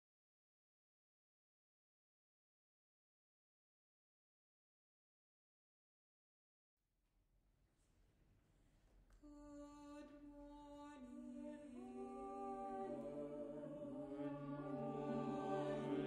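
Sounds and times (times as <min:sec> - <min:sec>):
choir singing unaccompanied: 0:10.9 - 0:16.0.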